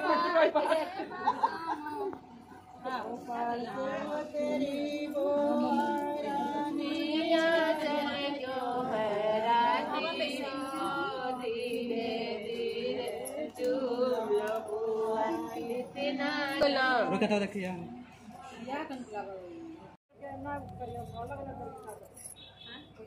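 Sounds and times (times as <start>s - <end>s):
women singing folk song together: 0.0s - 17.1s.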